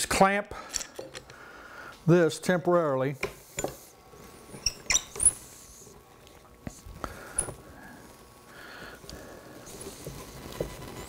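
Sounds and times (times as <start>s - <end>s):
high squeaks: 4.6s - 5.4s.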